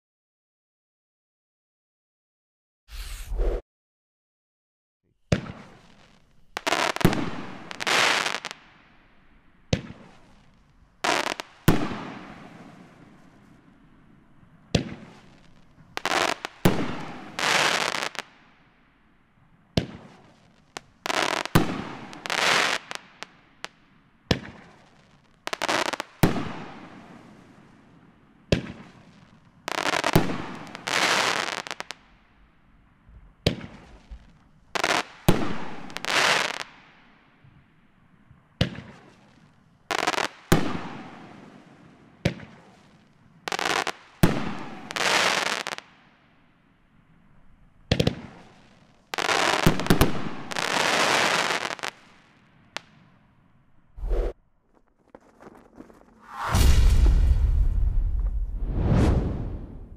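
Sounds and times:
firework bursts and crackling: 5.3 - 9.0, 9.7 - 13.4, 14.8 - 18.4, 19.8 - 27.8, 28.4 - 32.0, 33.5 - 37.0, 38.6 - 46.1, 47.9 - 53.0, 54.0 - 59.9
firework launch bangs: 55.3 - 59.9.

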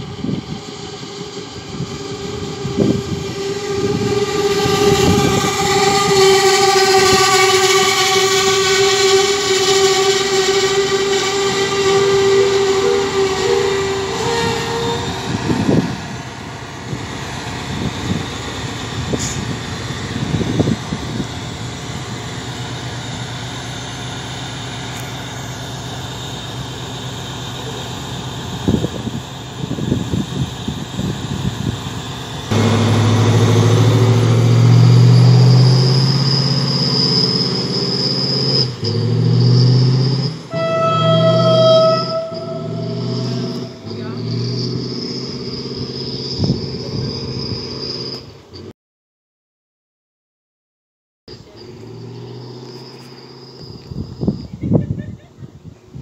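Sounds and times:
diesel engine idling: 0.0 - 36.7
train brakes squealing: 0.2 - 48.7, 51.3 - 55.3.

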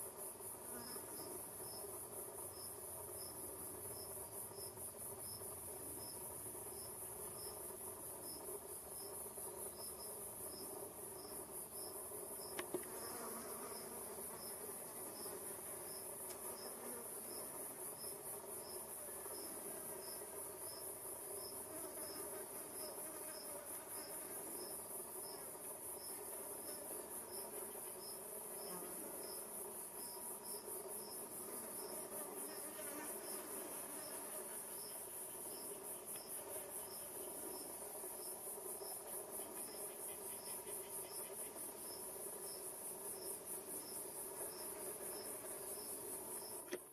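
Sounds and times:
flies buzzing: 0.1 - 46.9
insect high-pitched trill: 0.2 - 46.7.

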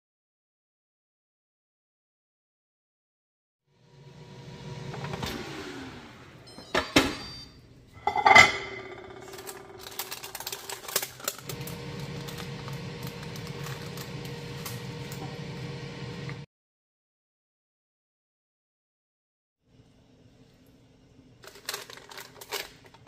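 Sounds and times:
metallic clang: 8.0 - 9.8
steady hum: 8.0 - 16.4.

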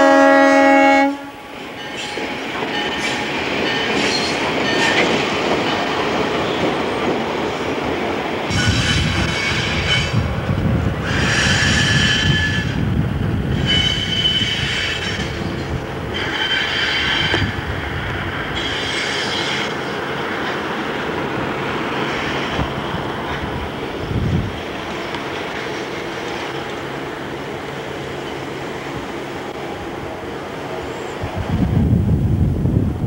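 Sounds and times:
low rumble of moving train: 0.0 - 33.0
train wheels squealing on track: 1.6 - 7.0, 8.5 - 10.3, 11.0 - 20.4, 21.8 - 26.9.

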